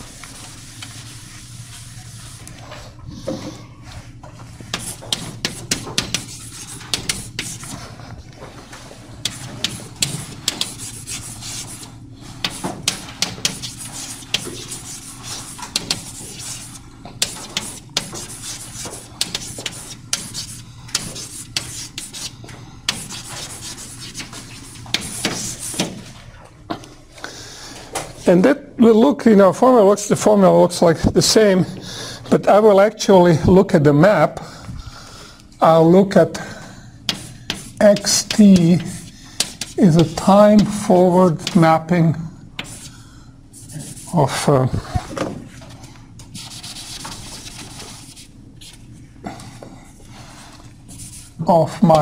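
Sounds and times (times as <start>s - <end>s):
chalk writing on blackboard: 4.6s - 8.0s, 9.2s - 26.1s, 37.1s - 41.7s, 42.6s - 43.0s, 43.6s - 45.0s, 46.3s - 48.8s, 50.2s - 51.4s
eraser rubbing on blackboard: 4.6s - 8.0s, 9.2s - 26.0s, 37.1s - 41.7s, 42.6s - 42.9s, 43.6s - 45.0s, 46.3s - 48.8s, 50.3s - 51.4s.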